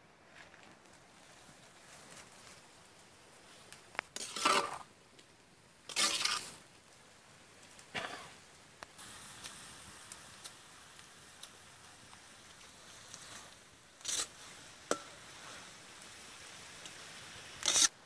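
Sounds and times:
meat sizzling with pops: 0:01.9 - 0:18.0
ladle scraping iron wok: 0:04.1 - 0:04.8, 0:05.9 - 0:06.6, 0:13.2 - 0:15.8, 0:17.6 - 0:18.0.

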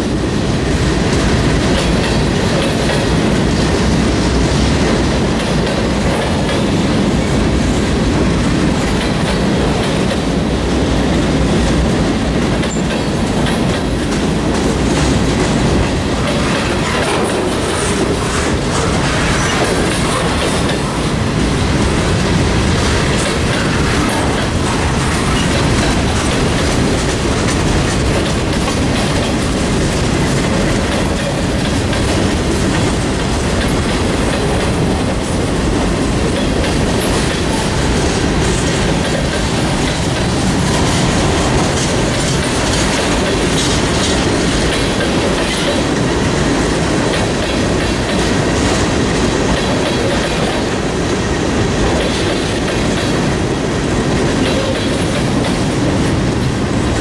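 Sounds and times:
steel wheels rumbling on rails: 0:00.0 - 0:57.0
wheels clicking over rail joints: 0:22.3 - 0:46.2.

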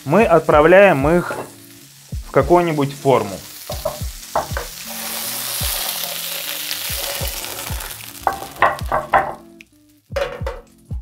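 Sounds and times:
dumplings sizzling in hot oil: 0:00.0 - 0:10.8
background music with low beat: 0:00.1 - 0:06.0, 0:06.8 - 0:11.0.

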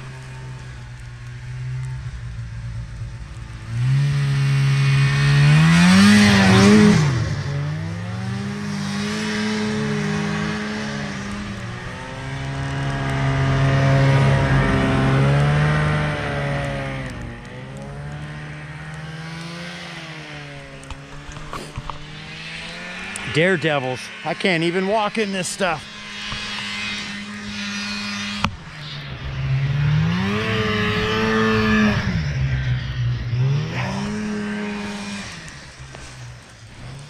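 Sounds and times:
snowmobile engine revving: 0:00.0 - 0:37.0.

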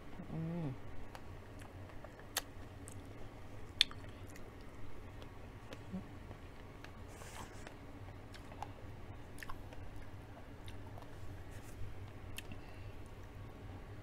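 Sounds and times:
low steady hum: 0:00.0 - 0:14.0
person chewing food: 0:01.0 - 0:13.3
wet mouth clicks and smacks: 0:03.7 - 0:04.4.

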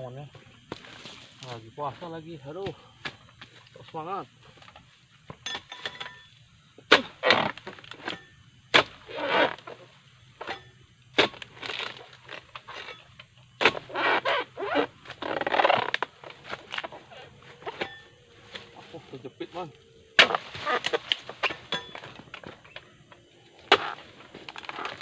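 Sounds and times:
chisel blade striking fronds: 0:06.9 - 0:09.7, 0:10.4 - 0:14.3, 0:20.2 - 0:22.8
rasping tearing rustle: 0:08.8 - 0:09.9, 0:11.2 - 0:19.1, 0:20.2 - 0:22.5, 0:23.6 - 0:25.0.

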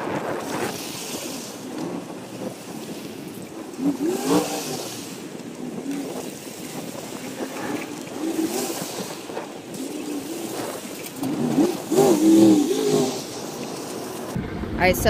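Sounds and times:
truck engine revving: 0:00.0 - 0:14.4
wet hiss of slush: 0:00.4 - 0:03.2, 0:03.8 - 0:05.4, 0:07.2 - 0:14.4.

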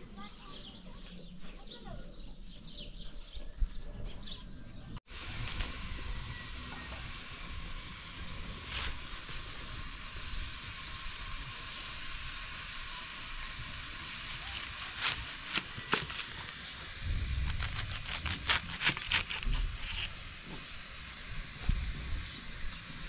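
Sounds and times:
steady hiss: 0:05.1 - 0:23.0
knife crunching through cabbage: 0:14.2 - 0:20.2.

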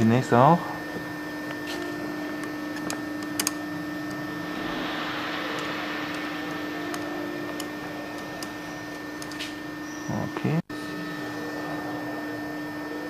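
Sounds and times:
steady hum with hiss: 0:00.0 - 0:13.0.

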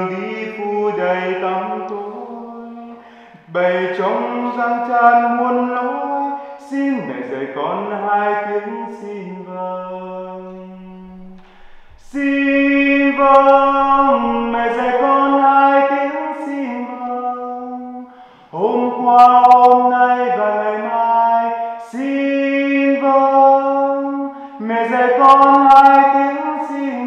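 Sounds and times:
man singing unaccompanied: 0:00.0 - 0:27.0.

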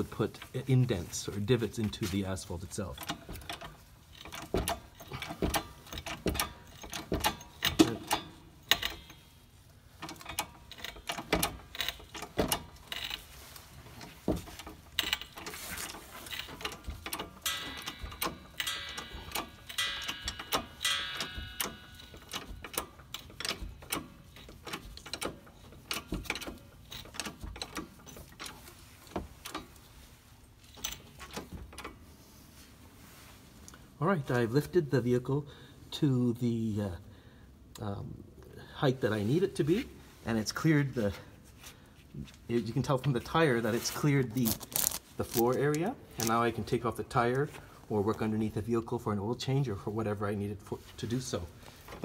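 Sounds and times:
floor jack pump clicks and knocks: 0:03.0 - 0:09.1, 0:16.3 - 0:29.6
creaking: 0:43.6 - 0:46.6.

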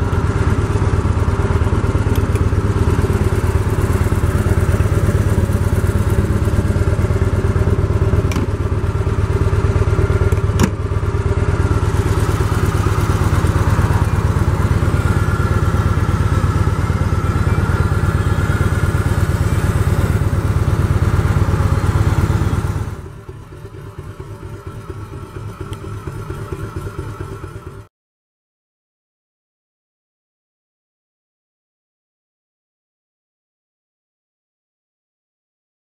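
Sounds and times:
motorcycle engine idling: 0:00.0 - 0:27.9.

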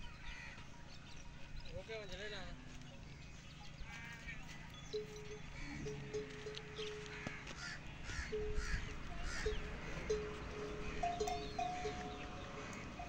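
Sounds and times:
thin ringing tones: 0:04.8 - 0:07.1, 0:08.3 - 0:13.0.

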